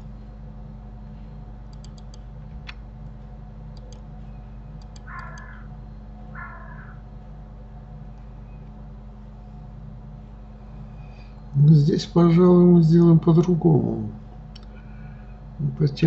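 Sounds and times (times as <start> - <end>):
steady low hum: 0.0 - 16.0
mouse and keyboard clicks: 1.7 - 2.8, 4.8 - 5.5.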